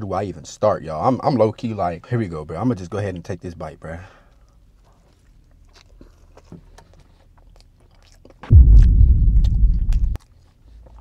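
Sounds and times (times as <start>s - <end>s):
man chewing: 4.3s - 11.0s
loud low rumble: 8.5s - 10.2s.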